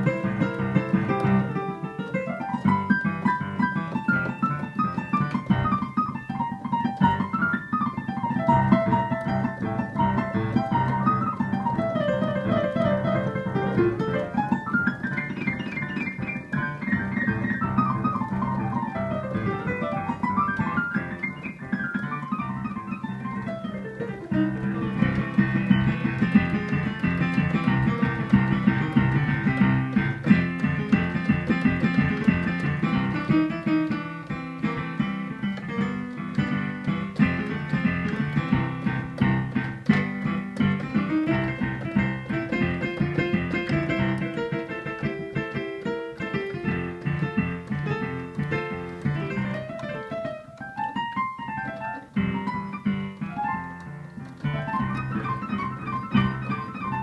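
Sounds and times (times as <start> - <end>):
blues piano playing: 0.0 - 57.0.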